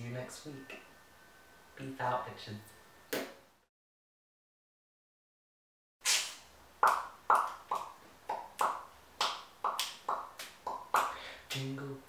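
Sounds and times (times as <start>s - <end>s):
fingers snapping: 6.2s - 11.7s.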